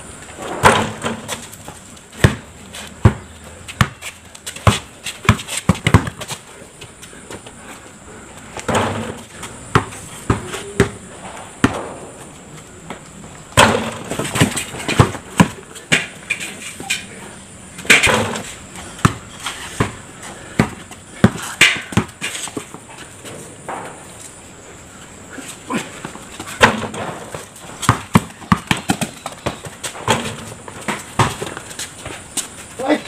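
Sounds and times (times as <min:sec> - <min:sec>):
basketball bouncing on concrete: 0:00.5 - 0:06.4, 0:08.6 - 0:12.3, 0:13.6 - 0:16.4, 0:17.8 - 0:22.8, 0:26.0 - 0:32.5
shoes scuffing on concrete: 0:18.2 - 0:24.4, 0:25.4 - 0:33.0.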